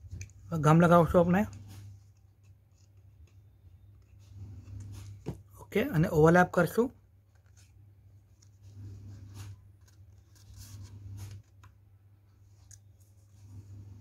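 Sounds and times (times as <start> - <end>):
low steady hum: 0.0 - 14.0
stiff paper rustling: 7.3 - 11.8.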